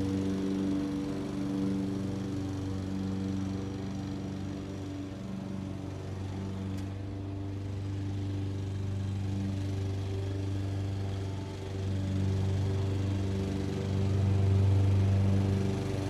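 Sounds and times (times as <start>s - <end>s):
lawn mower engine running: 0.0s - 16.0s.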